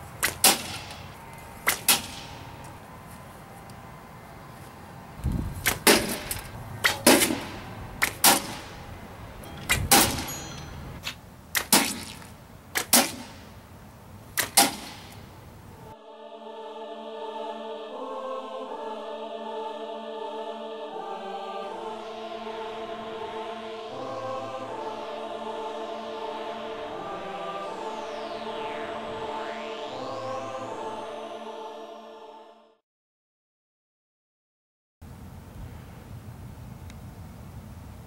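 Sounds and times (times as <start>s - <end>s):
choral music: 5.9s - 11.0s, 15.8s - 32.8s.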